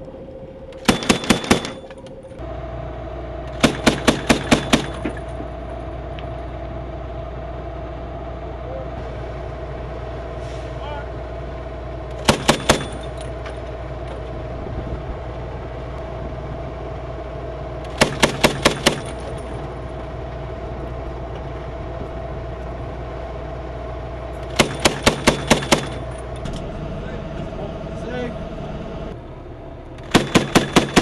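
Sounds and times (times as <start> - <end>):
vehicle engine running: 0.0 - 31.0
grenade launcher firing bursts: 0.8 - 1.8, 3.5 - 5.1, 12.2 - 13.0, 17.9 - 19.3, 24.5 - 26.1, 30.0 - 31.0.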